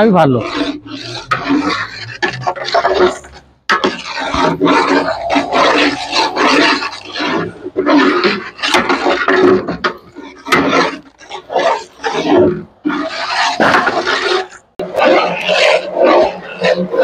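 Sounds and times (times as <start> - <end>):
metal ladle scraping in pot: 0.4 - 3.4.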